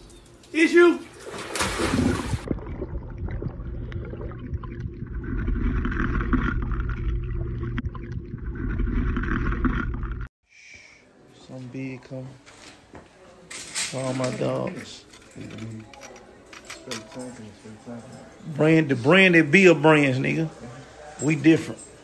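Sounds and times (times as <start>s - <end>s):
water churning and sloshing: 0.0s - 10.3s
loud splash into pool: 1.2s - 2.8s.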